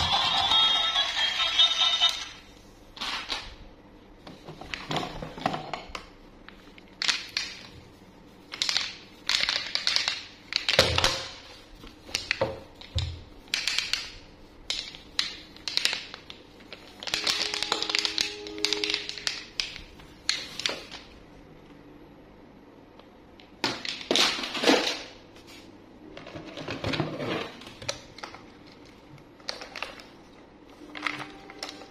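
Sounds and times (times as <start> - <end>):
toy handling rustles and clacks: 4.3 - 21.2, 30.8 - 31.9.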